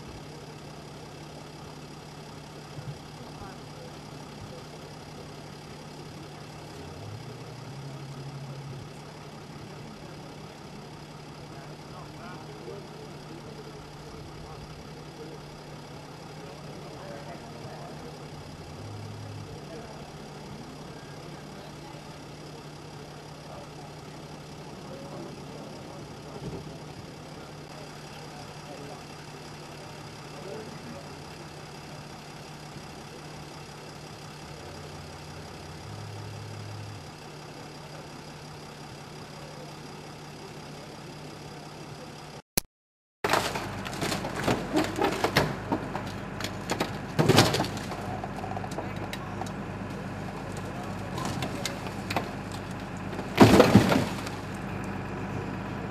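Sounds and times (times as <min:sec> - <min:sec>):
faint distant voices: 0:00.0 - 0:42.4, 0:43.4 - 0:55.9
vehicle engine idling: 0:00.0 - 0:42.4, 0:43.2 - 0:55.9
clatter and knocks: 0:43.2 - 0:49.6, 0:50.5 - 0:54.6.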